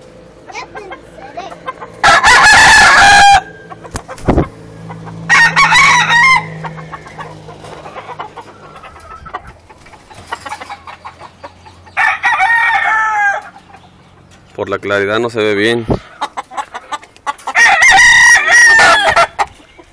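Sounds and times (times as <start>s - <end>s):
rooster crowing: 2.0s - 3.7s, 5.2s - 7.2s, 11.9s - 13.6s, 17.5s - 19.5s.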